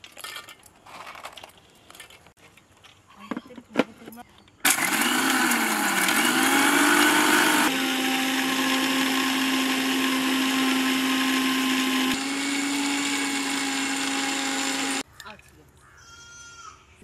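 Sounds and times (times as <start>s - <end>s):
mixer grinder motor whine: 4.7s - 15.0s.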